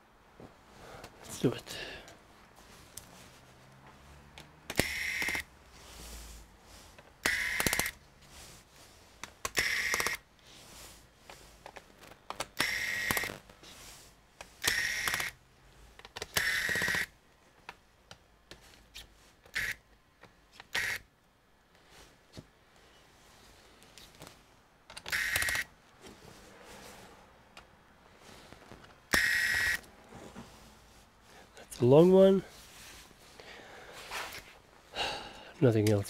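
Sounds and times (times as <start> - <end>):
electric screwdriver bursts: 4.7 - 5.5, 7.2 - 8.0, 9.5 - 10.2, 12.5 - 13.4, 14.6 - 15.4, 16.2 - 17.1, 19.5 - 19.8, 20.7 - 21.0, 25.0 - 25.7, 29.1 - 29.9.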